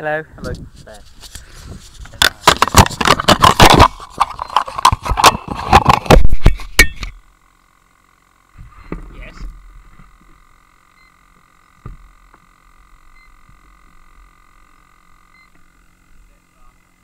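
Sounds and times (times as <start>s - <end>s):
faint steady whine: 0.0s - 17.0s
handling rubbing and bumps: 0.4s - 7.2s.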